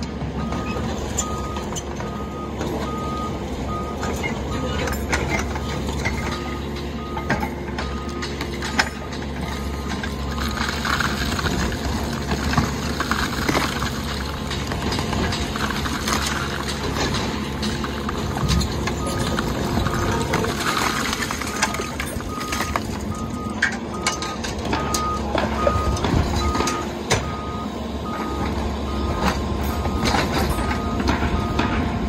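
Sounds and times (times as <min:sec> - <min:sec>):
excavator diesel engine running: 0:00.0 - 0:32.0
concrete rubble crunching: 0:00.2 - 0:27.4, 0:28.0 - 0:32.0.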